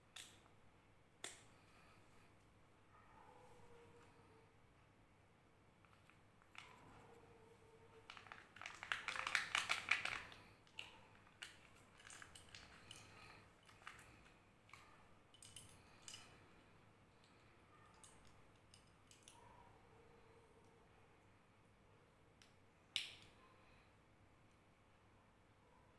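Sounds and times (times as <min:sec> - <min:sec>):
foil and plastic wrapping crinkling: 0:08.0 - 0:10.4
plastic toy parts clicking: 0:08.1 - 0:14.1.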